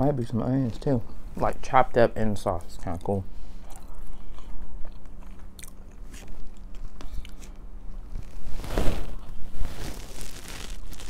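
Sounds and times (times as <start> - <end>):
chewing and mouth sounds: 2.7 - 7.6.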